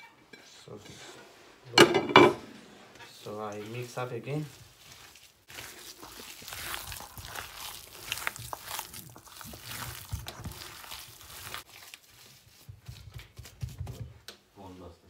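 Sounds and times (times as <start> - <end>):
hands kneading wet mixture: 3.1 - 15.0.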